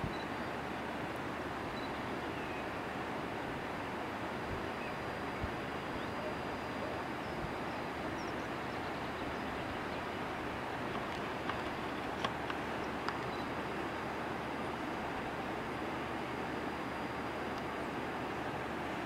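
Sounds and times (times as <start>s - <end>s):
steady rushing outdoor noise: 0.0s - 19.0s
faint clicks: 10.8s - 13.5s, 17.5s - 17.8s.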